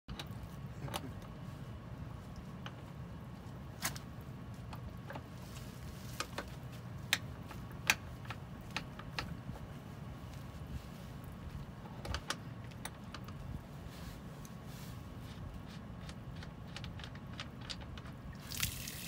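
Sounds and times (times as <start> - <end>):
steady low hum: 0.1 - 19.0
light clicks and taps on hull: 2.2 - 13.7, 15.2 - 18.7.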